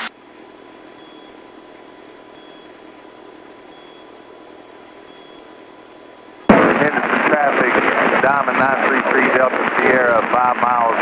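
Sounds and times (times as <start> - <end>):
faint steady hum: 0.0 - 11.0
helicopter hiss: 6.5 - 10.8.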